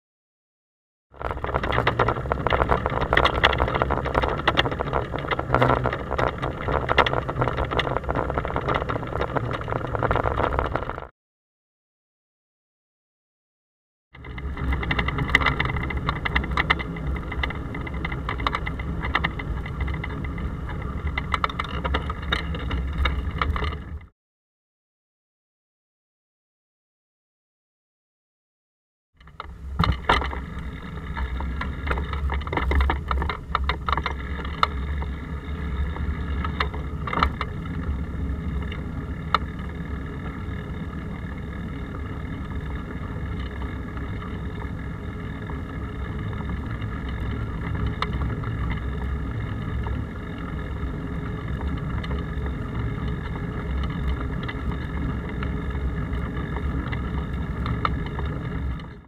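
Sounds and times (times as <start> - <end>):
bicycle rumble and rattle: 1.1 - 11.1, 14.1 - 24.1, 29.2 - 59.0
sharp knocks over bumps: 29.3 - 30.4.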